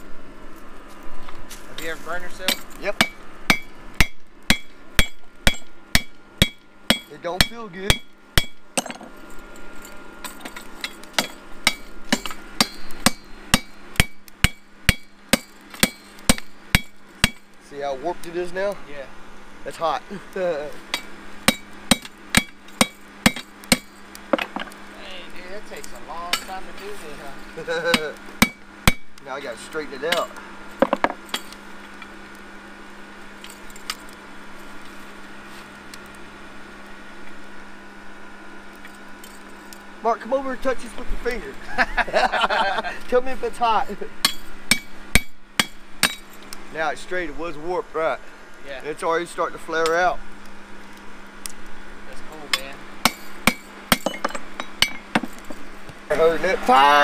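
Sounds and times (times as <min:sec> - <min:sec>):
steady low hum: 0:00.0 - 0:57.0
hammer blows on hot iron: 0:01.7 - 0:09.1, 0:09.8 - 0:18.8, 0:20.2 - 0:24.8, 0:25.6 - 0:31.6, 0:43.1 - 0:46.5.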